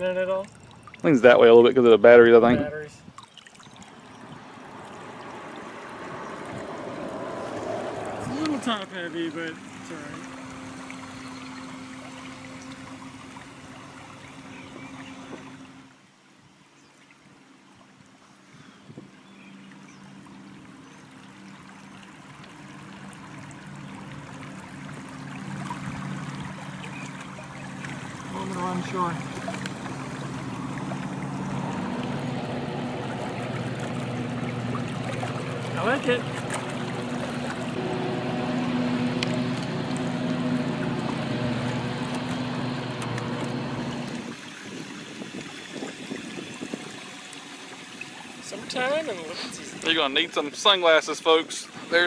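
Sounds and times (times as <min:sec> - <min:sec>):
water rushing and lapping: 0:00.0 - 0:52.0
electric motor humming: 0:07.6 - 0:15.9, 0:25.4 - 0:44.4.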